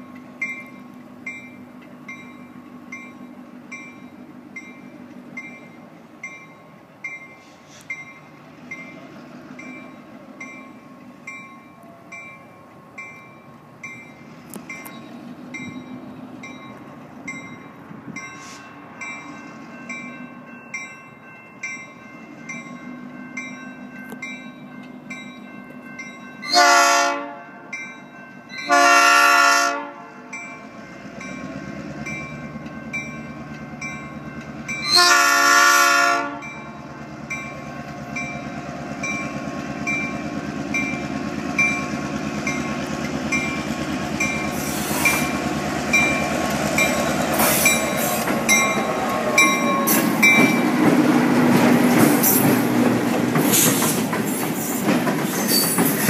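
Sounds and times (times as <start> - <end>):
crossing warning bell ringing: 0.0 - 53.1
locomotive air horn blasts: 26.4 - 27.4, 28.7 - 30.3, 34.9 - 36.5.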